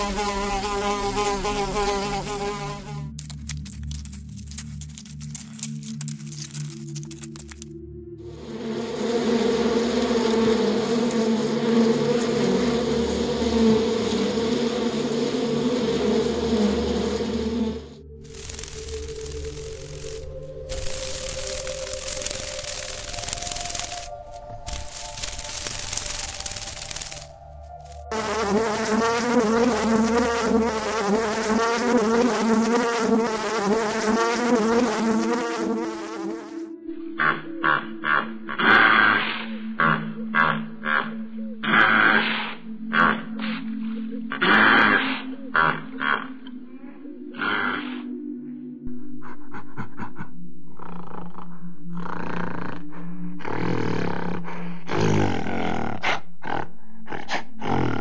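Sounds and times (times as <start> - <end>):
bumblebee buzzing: 0.0 - 3.7, 8.3 - 42.2, 44.4 - 46.4, 47.4 - 48.1, 50.7 - 55.5
steady low hum: 7.7 - 37.6
gorilla roaring and grunting: 37.2 - 43.4, 44.3 - 46.5, 47.3 - 48.0, 50.7 - 58.0.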